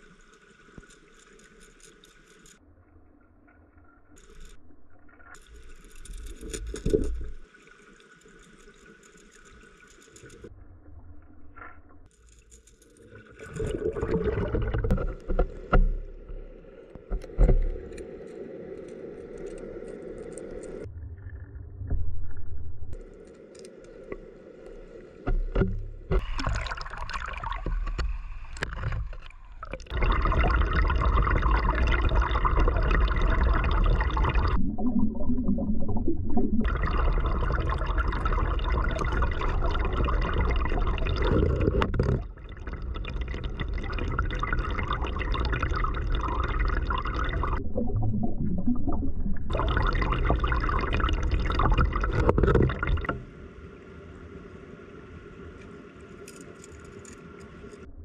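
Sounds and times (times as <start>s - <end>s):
stream water rushing underwater: 13.0s - 57.9s.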